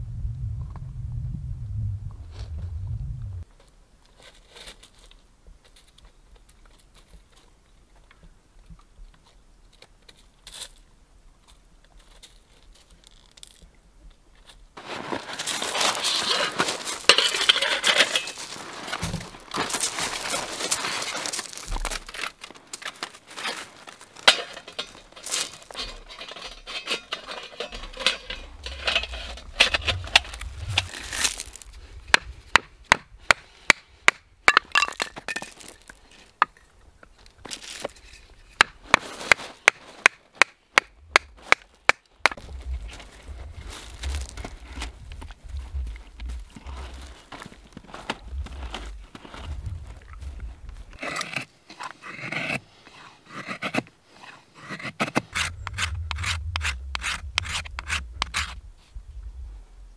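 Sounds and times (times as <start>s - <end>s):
gravel crunching: 9.2s - 52.0s, 54.8s - 59.9s.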